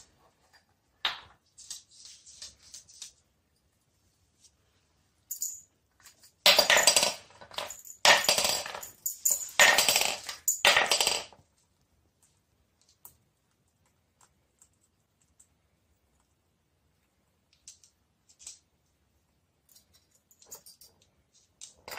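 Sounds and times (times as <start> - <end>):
plastic cup clattering on wooden floor: 6.5 - 8.9, 9.6 - 11.4.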